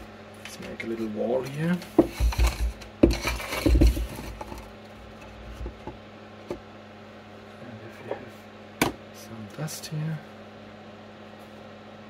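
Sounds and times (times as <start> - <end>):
extractor fan hum: 0.0 - 12.0
board knocking on workbench: 1.9 - 4.2, 8.8 - 9.0.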